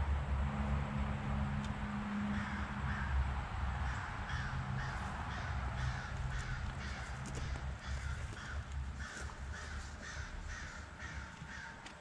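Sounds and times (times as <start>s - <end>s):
low steady hum: 0.0s - 12.0s
bird calling: 3.8s - 12.0s.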